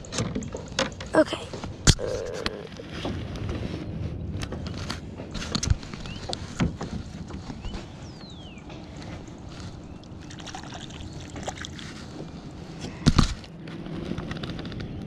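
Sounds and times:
water lapping around kayak: 2.7s - 14.4s.

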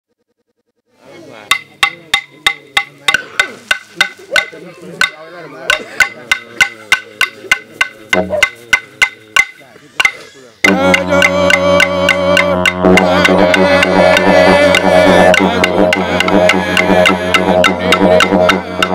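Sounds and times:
voices singing: 1.0s - 18.9s.

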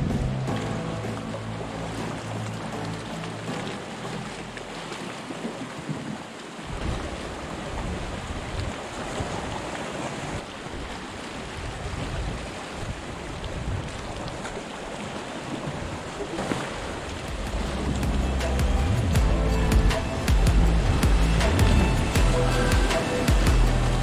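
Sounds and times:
surf washing on rocky shore: 0.0s - 24.0s
wind buffeting microphone: 5.5s - 15.0s.

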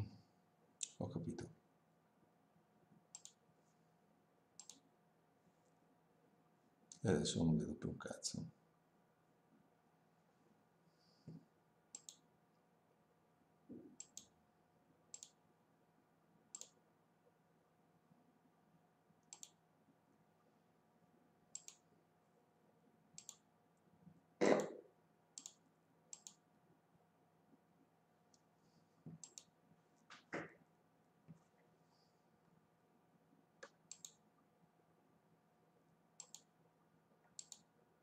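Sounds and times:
computer mouse clicks: 0.8s - 1.0s, 3.1s - 3.4s, 4.6s - 4.9s, 11.9s - 12.3s, 13.9s - 14.4s, 15.1s - 15.4s, 16.5s - 16.8s, 19.2s - 19.6s, 21.5s - 21.9s, 23.2s - 23.5s, 25.4s - 26.4s, 29.1s - 29.5s, 33.6s - 34.2s, 36.2s - 36.5s, 37.3s - 37.7s.

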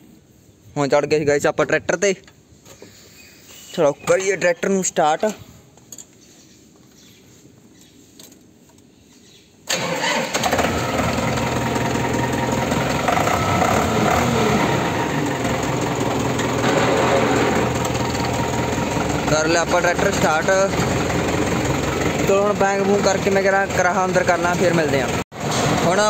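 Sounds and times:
diesel tractor engine starting: 9.7s - 26.0s.

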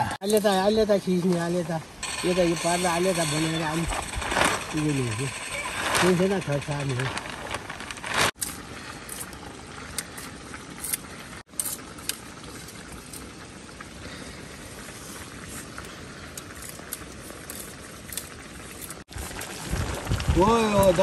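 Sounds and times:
fire crackles: 0.0s - 21.0s
vegetables sizzling in a wok: 0.4s - 7.4s.

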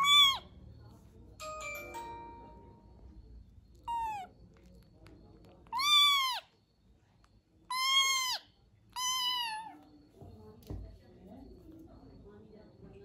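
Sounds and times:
kitten meowing: 0.0s - 0.4s, 3.8s - 4.3s, 5.7s - 6.5s, 7.7s - 8.4s, 9.0s - 9.8s.

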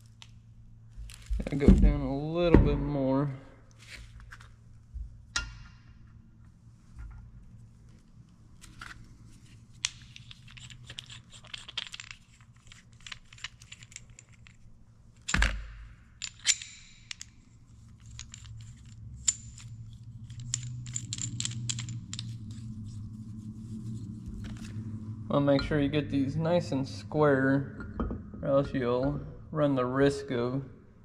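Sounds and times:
low steady hum: 0.0s - 31.0s
steel parts clinking on metal: 16.1s - 22.7s.

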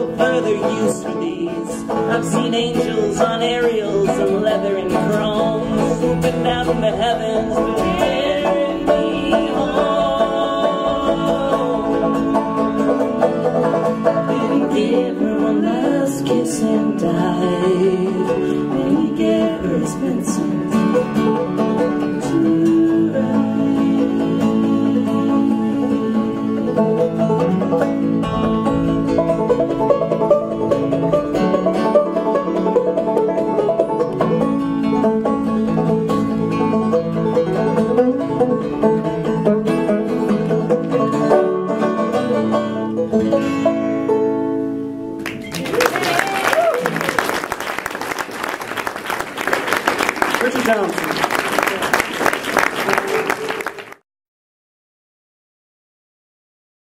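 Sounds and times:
banjo and acoustic guitar playing: 0.0s - 45.8s, 46.8s - 54.0s.

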